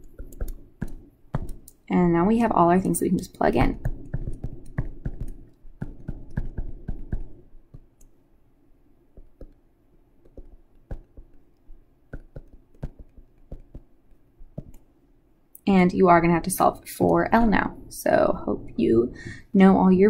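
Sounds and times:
stylus tapping on tablet: 0.0s - 1.8s, 3.2s - 8.2s, 9.1s - 9.6s, 10.2s - 14.9s.

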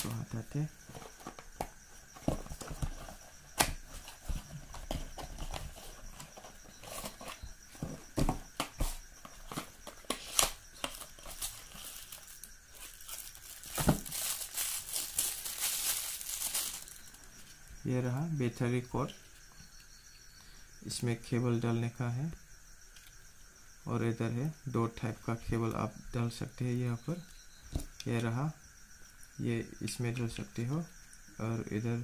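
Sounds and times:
packaging rustling: 3.9s - 17.2s.

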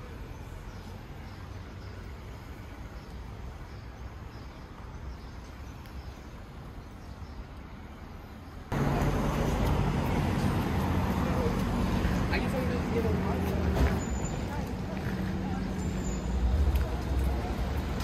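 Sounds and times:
vehicle engine humming: 8.7s - 18.0s
people talking: 8.8s - 18.0s.

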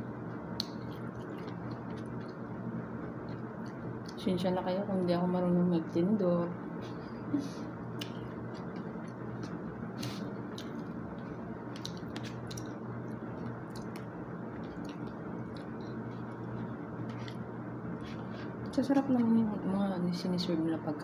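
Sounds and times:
low background hum: 0.0s - 21.0s
person chewing food: 0.3s - 4.2s, 7.9s - 18.7s.

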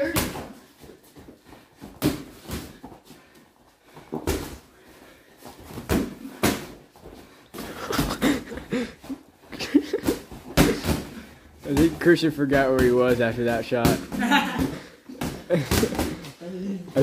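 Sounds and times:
boxing gloves hitting bodies: 0.0s - 3.1s, 4.0s - 4.7s, 5.4s - 16.4s
footsteps on mats: 0.4s - 13.5s.

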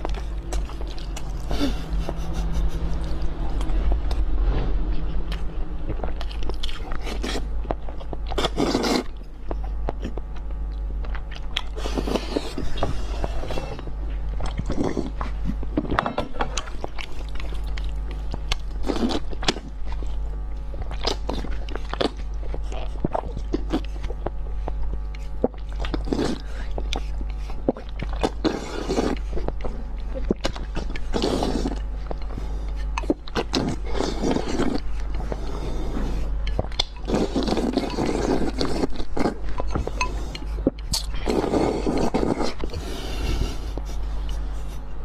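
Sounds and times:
person chewing noodles: 0.0s - 4.3s, 4.9s - 45.0s
loud slurps: 31.1s - 31.8s, 37.0s - 39.4s.

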